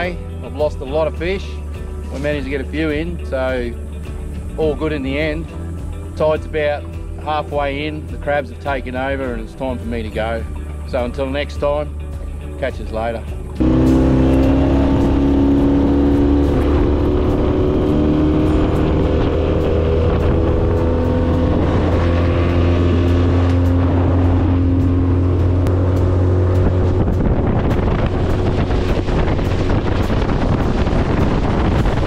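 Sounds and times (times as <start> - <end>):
outboard motor running: 13.6 - 32.0
water rushing under hull: 13.6 - 32.0.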